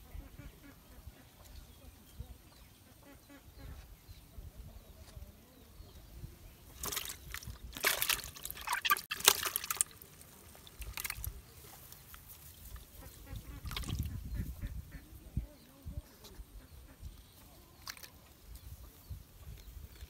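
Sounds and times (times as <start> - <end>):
fish splashing in bucket: 6.7 - 11.4, 13.6 - 14.1, 17.8 - 18.2.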